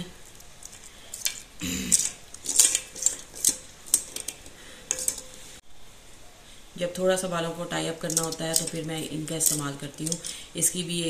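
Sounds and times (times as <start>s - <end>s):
plastic hair clips clattering: 0.6s - 5.3s, 8.0s - 10.3s.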